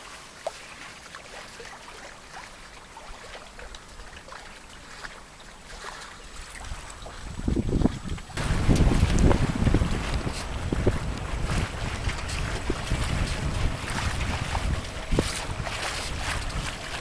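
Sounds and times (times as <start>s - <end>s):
small splashes: 0.0s - 17.0s
water lapping along hull: 0.0s - 17.0s
wind buffeting microphone: 6.6s - 17.0s.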